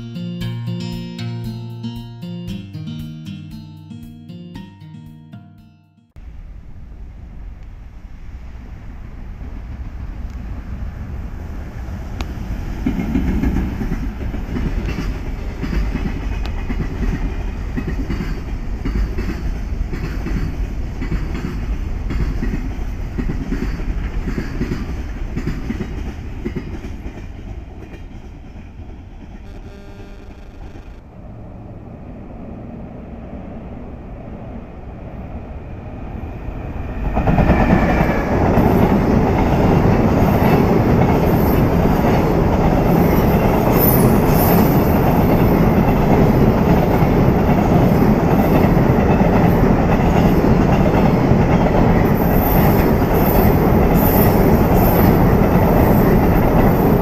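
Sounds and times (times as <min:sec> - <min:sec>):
container train passing: 0:00.0 - 0:05.6, 0:06.2 - 0:57.0.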